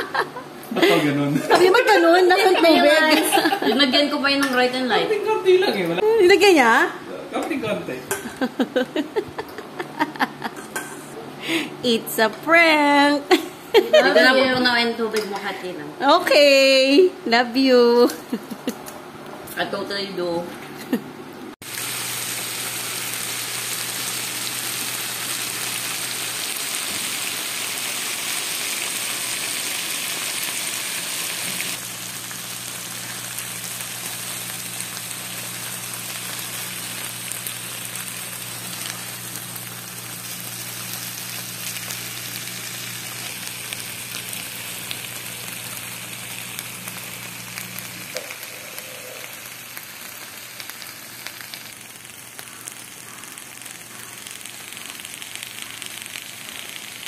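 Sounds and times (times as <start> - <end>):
potato slices sizzling in oil: 21.6 - 57.0.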